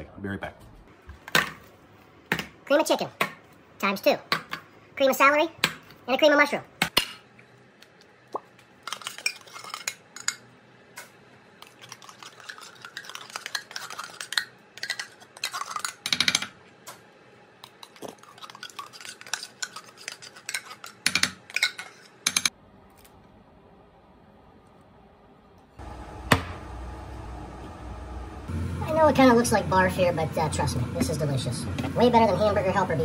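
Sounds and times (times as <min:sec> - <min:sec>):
metal spoon scraping and clinking: 0:18.3 - 0:22.5.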